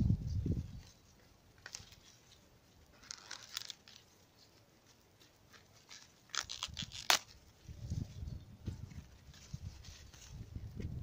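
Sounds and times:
corn husks rustling and tearing: 0.7s - 10.8s
crackles: 0.8s - 7.6s.

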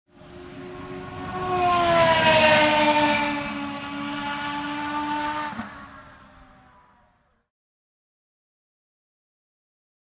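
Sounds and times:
race car passing at speed: 0.1s - 7.4s.

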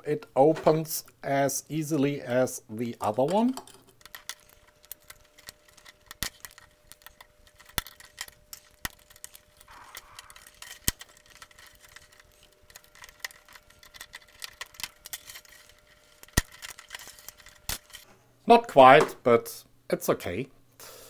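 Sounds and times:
screwdriver prying metal can: 3.3s - 18.0s.

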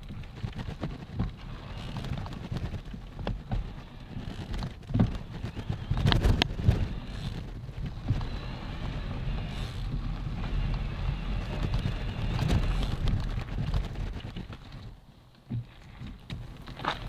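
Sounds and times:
bike rattling: 0.0s - 17.0s
wind rumble on microphone: 0.0s - 17.0s
tyres crunching on gravel: 16.6s - 17.0s.

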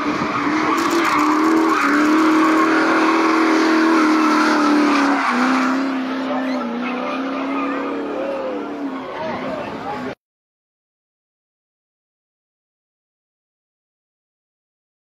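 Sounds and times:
car engine at high revs: 0.0s - 10.2s.

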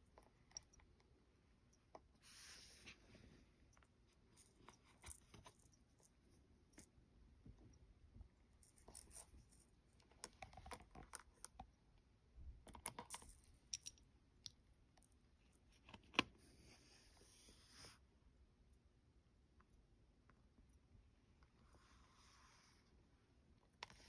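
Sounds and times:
soft hiss: 1.7s - 7.6s, 20.7s - 24.0s.

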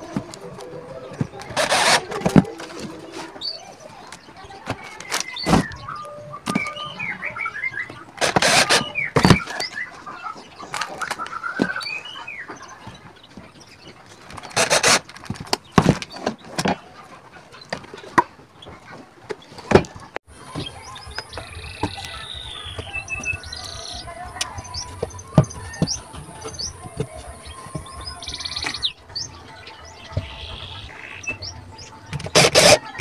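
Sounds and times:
small birds chirping: 0.0s - 19.6s, 20.3s - 33.0s
cordless drill driving screws: 1.6s - 2.1s, 8.2s - 8.8s.

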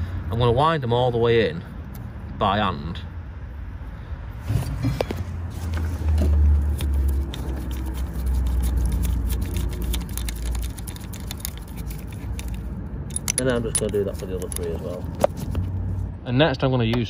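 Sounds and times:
socket clicking and scraping: 6.6s - 15.8s.

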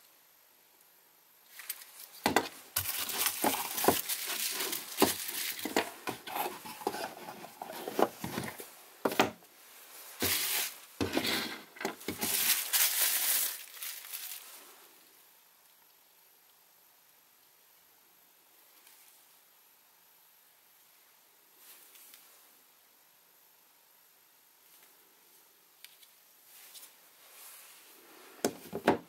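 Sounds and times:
bubble wrap crinkling: 1.5s - 14.8s.

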